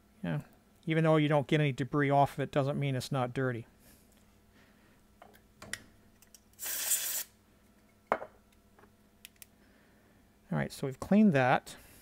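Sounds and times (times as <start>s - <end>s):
compressed air blast: 6.6s - 7.3s.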